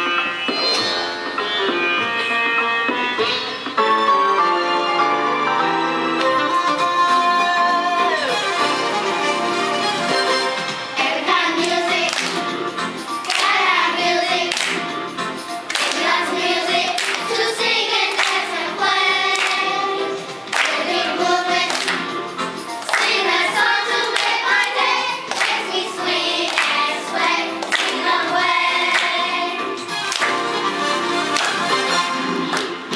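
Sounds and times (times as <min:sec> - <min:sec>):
children singing in unison: 0:11.0 - 0:12.5, 0:13.3 - 0:14.7, 0:15.8 - 0:22.0, 0:22.9 - 0:29.6
rhythmic hand claps: 0:11.0 - 0:32.9.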